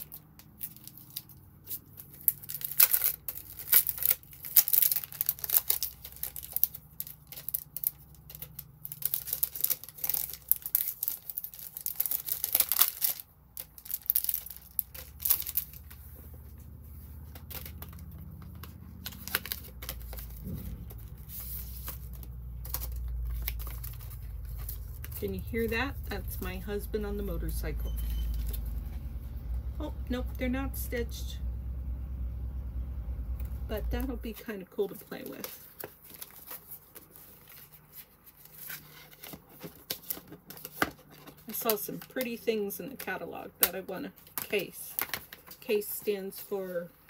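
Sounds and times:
plastic packaging crinkling and tearing: 0:00.0 - 0:28.8, 0:34.9 - 0:46.5
motorcycle engine rumble: 0:15.0 - 0:34.4.

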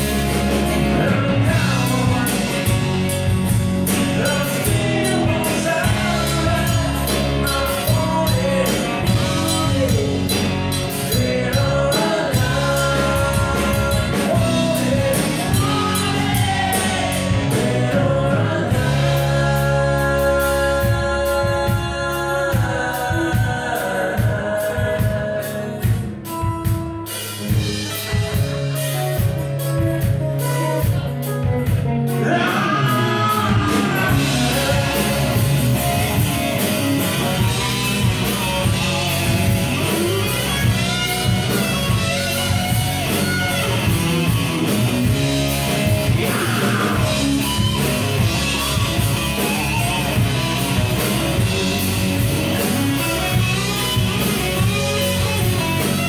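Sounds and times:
live rock band playing: 0:00.0 - 0:56.0
steady drumming: 0:00.0 - 0:56.0
lead singer through a pa: 0:00.7 - 0:03.2, 0:03.8 - 0:26.5, 0:32.1 - 0:39.0, 0:45.8 - 0:48.6.

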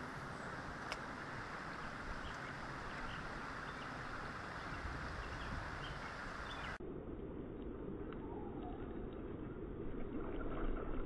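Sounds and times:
creek water running: 0:00.0 - 0:06.8.

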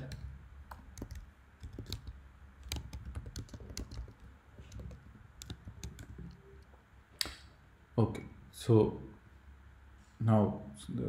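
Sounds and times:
keyboard keystroke clicks: 0:00.0 - 0:06.4.

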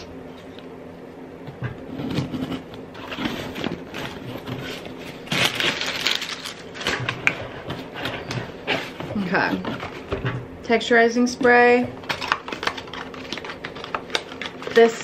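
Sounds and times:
packing paper crinkling: 0:02.4 - 0:10.1, 0:12.0 - 0:15.0.

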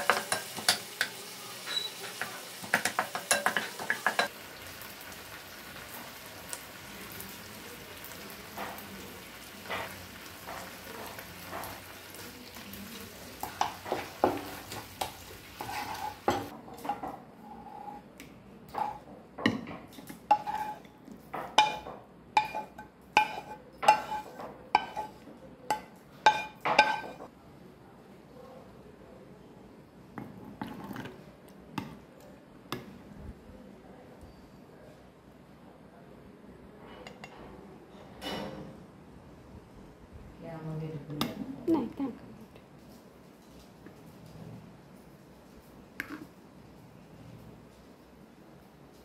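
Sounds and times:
food sizzling in oil: 0:00.0 - 0:16.5, 0:20.2 - 0:20.9, 0:21.5 - 0:27.2
spatula knocking on pan: 0:02.2 - 0:04.3
spatula scraping pan: 0:13.4 - 0:18.1, 0:18.7 - 0:19.0, 0:19.9 - 0:27.3.

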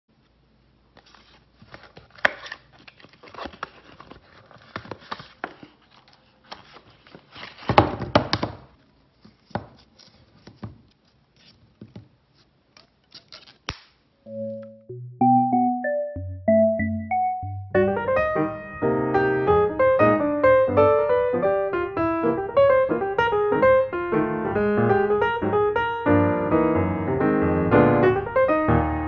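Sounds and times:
cellophane wrapper crinkling: 0:01.0 - 0:07.7.

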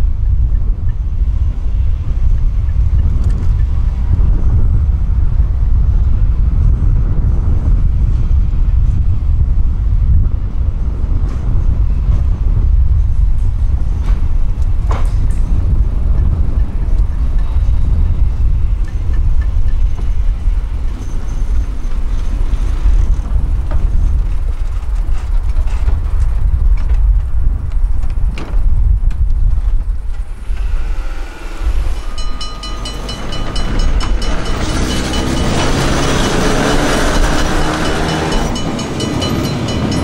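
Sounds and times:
tram clicks: 0:00.0 - 0:04.4, 0:13.4 - 0:30.6, 0:31.8 - 0:40.0
wind rumble on microphone: 0:00.0 - 0:40.0
tram rolling past: 0:10.5 - 0:27.3, 0:29.8 - 0:40.0.

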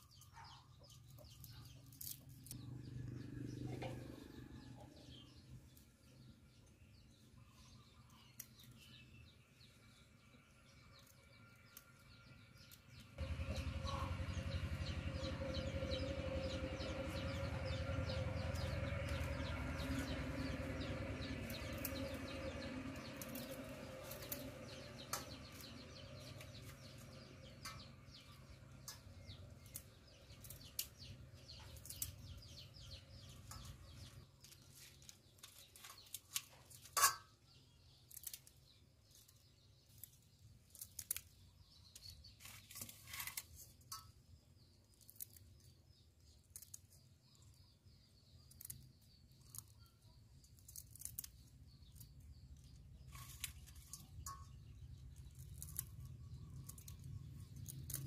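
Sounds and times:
scissors snipping prawns: 0:55.3 - 0:58.0.

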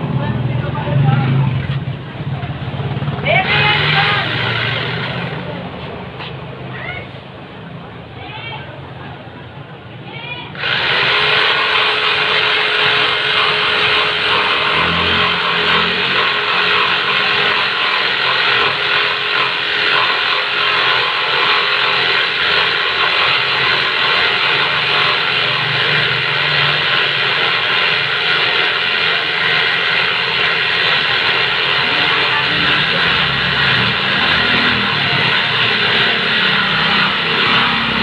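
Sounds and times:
jigsaw cutting wood: 0:03.2 - 0:05.5, 0:10.6 - 0:38.0.

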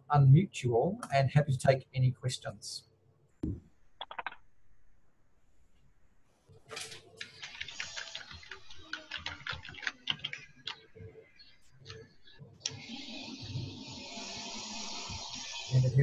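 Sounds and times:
keyboard typing clicks: 0:04.0 - 0:04.4, 0:06.8 - 0:10.9
microphone hiss: 0:12.6 - 0:16.0.

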